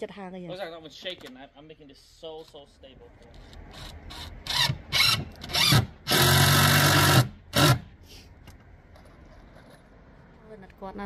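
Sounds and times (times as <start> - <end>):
cordless drill driving screws: 3.7 - 7.9.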